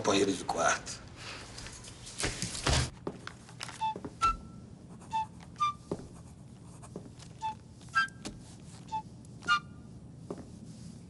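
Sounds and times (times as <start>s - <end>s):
pen scratching on paper: 4.9s - 7.5s.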